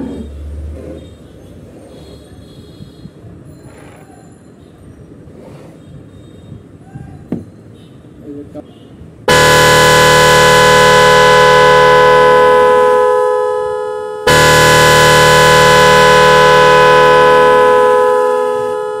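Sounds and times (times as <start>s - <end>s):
electronic horn blasts: 9.3s - 19.0s.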